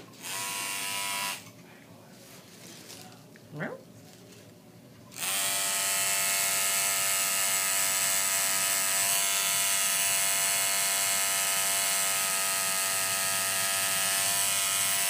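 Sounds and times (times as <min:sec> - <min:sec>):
tattoo machine buzzing: 0:00.2 - 0:01.5, 0:05.1 - 0:15.0.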